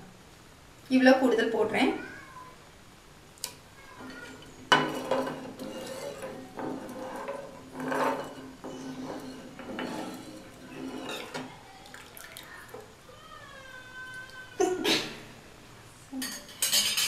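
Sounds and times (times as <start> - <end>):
ladle scraping and clinking pan: 4.0 - 11.6.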